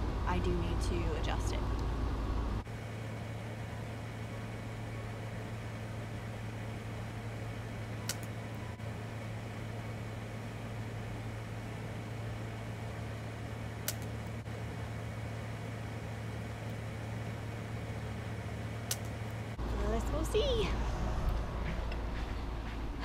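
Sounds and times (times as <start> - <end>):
low mechanical hum: 0.0 - 23.0
sharp snaps: 8.0 - 8.4, 13.8 - 14.2, 18.8 - 19.2.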